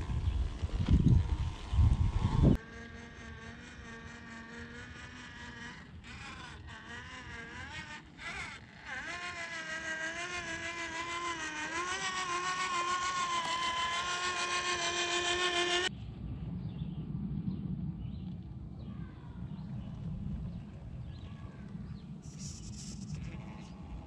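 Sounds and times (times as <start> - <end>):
electric motor whining: 0.0 - 15.9
low rumble: 15.9 - 22.3.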